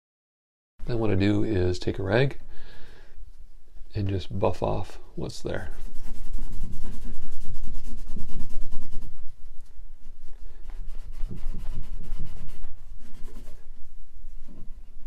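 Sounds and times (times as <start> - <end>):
rag rubbing on wood: 5.6 - 9.3, 10.6 - 13.7.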